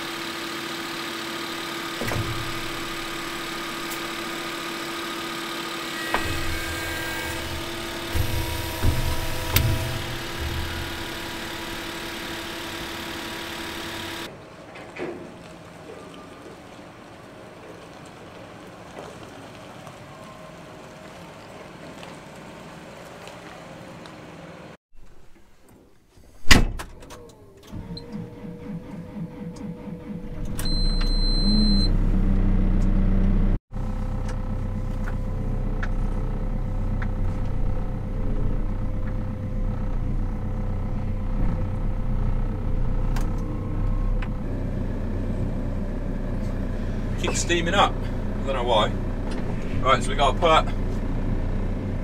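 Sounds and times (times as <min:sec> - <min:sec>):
distant tractor engine: 0:00.0 - 0:23.3, 0:28.2 - 0:52.0
diesel engine starting and running: 0:00.0 - 0:24.8, 0:26.3 - 0:52.0
short beep: 0:30.6 - 0:31.9.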